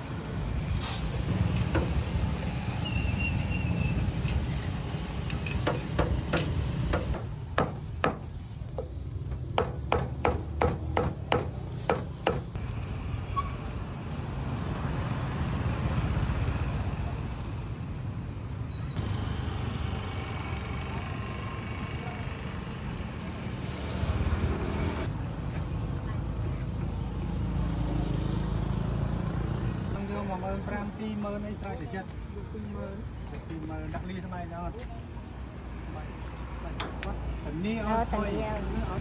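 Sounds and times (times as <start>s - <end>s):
low rumble of traffic: 0.0s - 39.0s
motorbikes passing: 14.0s - 18.2s, 19.0s - 30.6s.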